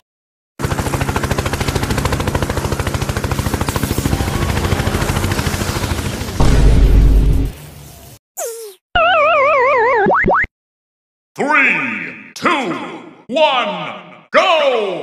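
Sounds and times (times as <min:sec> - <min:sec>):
rapid machine-gun fire: 0:01.6 - 0:07.6
deep explosion blast: 0:04.1 - 0:07.5.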